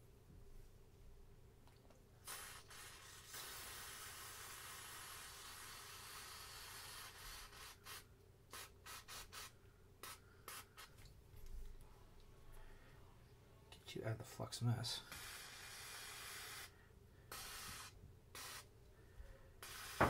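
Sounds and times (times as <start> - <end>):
aerosol spray hissing: 2.2 - 11.0, 15.1 - 18.7, 19.6 - 20.0.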